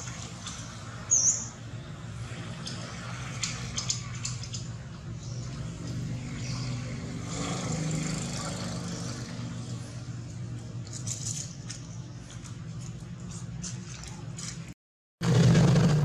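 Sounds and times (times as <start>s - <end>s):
engine humming: 15.2s - 16.0s.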